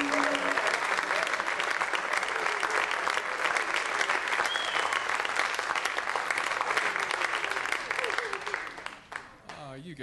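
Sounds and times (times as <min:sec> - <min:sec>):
audience applauding: 0:00.0 - 0:09.8
whistle: 0:04.4 - 0:05.0.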